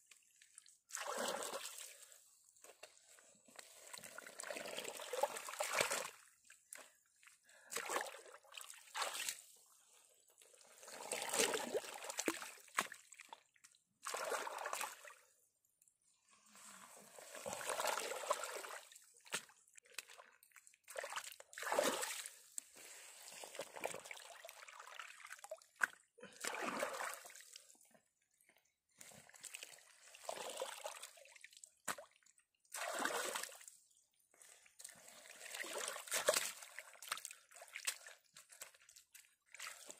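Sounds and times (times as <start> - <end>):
water sloshing and splashing: 0.1 - 15.2, 16.4 - 27.9, 29.2 - 33.7, 34.4 - 39.9
wet mud slapping: 35.7 - 39.9.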